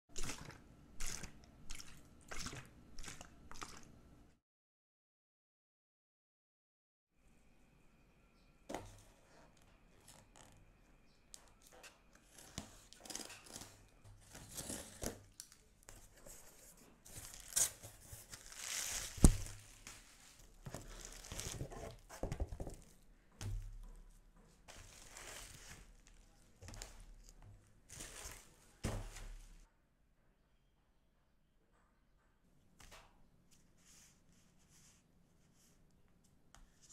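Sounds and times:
packing tape tearing off cardboard: 0:12.2 - 0:15.6, 0:17.1 - 0:22.0
cardboard flaps rustling: 0:17.1 - 0:22.9.

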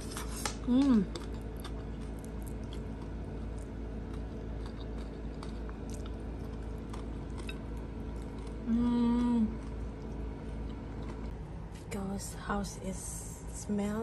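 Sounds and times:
quiet chewing: 0:00.0 - 0:11.4
steady low hum: 0:00.0 - 0:14.0
woman humming mmm: 0:00.6 - 0:01.2, 0:08.6 - 0:09.6.

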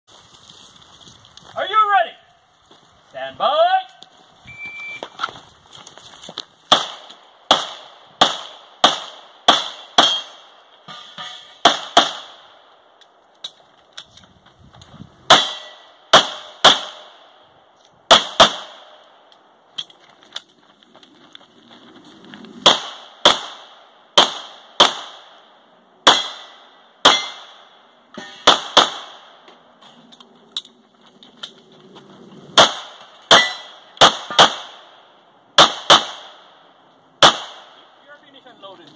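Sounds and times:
shot timer beep: 0:04.5 - 0:05.0
pistol shots: 0:06.7 - 0:10.6, 0:11.6 - 0:12.6, 0:15.3 - 0:17.2, 0:18.1 - 0:19.0, 0:22.6 - 0:25.4, 0:26.0 - 0:29.4, 0:32.6 - 0:35.0, 0:35.6 - 0:36.6, 0:37.2 - 0:37.8.

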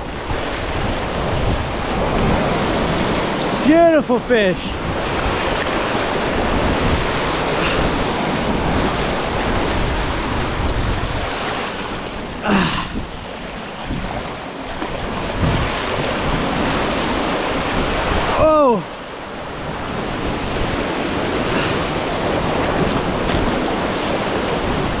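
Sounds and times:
wind on microphone: 0:00.0 - 0:03.7, 0:04.4 - 0:25.0
ocean surf breaking on rocks: 0:00.0 - 0:25.0.

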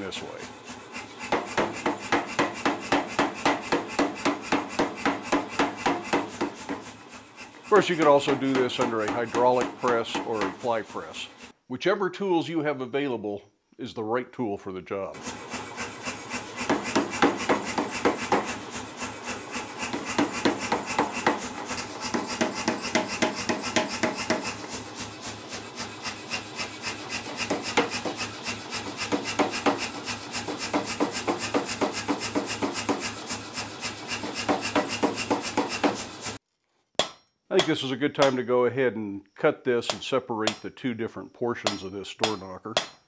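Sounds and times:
power hammer striking hot steel: 0:01.0 - 0:10.7, 0:15.2 - 0:36.4, 0:41.6 - 0:43.0.

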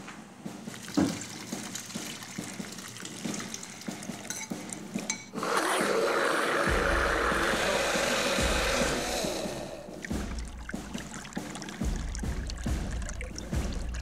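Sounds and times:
blender motor churning paste: 0:05.4 - 0:10.1.

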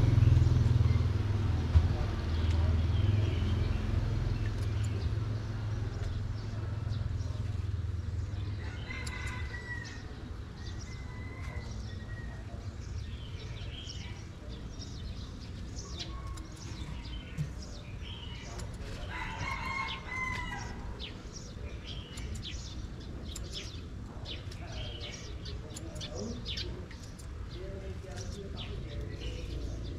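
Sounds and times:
rooster crowing: 0:19.1 - 0:20.8.

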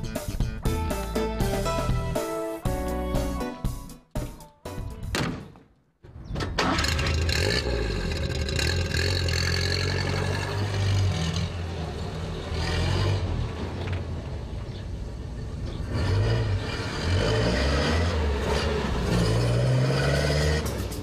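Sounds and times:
truck engine starting and running: 0:04.4 - 0:21.0
knocks: 0:05.0 - 0:05.7.

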